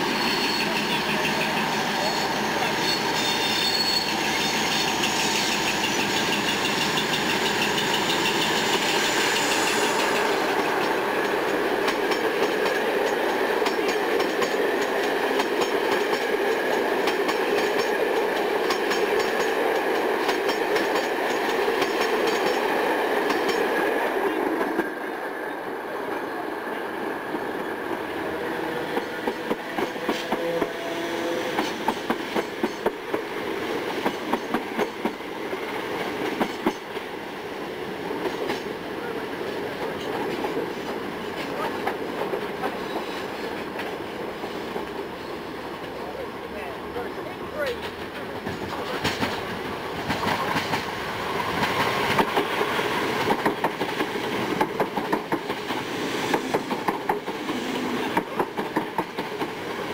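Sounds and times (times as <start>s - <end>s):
train wheels clacking over rail joints: 2.8s - 24.0s, 28.9s - 30.8s, 31.4s - 37.1s, 38.1s - 38.8s, 47.7s - 59.9s.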